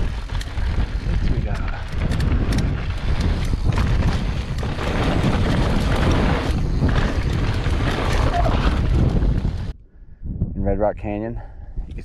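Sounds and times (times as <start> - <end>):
bike rattling clicks: 0.0 - 9.0
wind buffeting microphone: 0.0 - 12.0.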